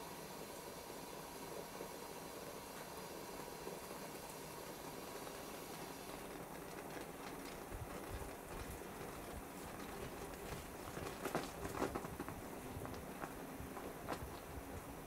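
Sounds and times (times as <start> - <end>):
porridge simmering in clay pot: 0.0 - 15.0
pops and clicks of boiling pot: 6.2 - 14.5.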